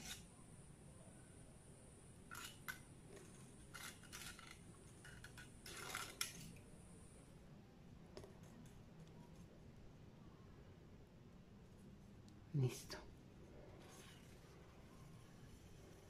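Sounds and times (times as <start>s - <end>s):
faint clicks and rustles of wire: 2.2s - 6.8s, 8.1s - 9.8s.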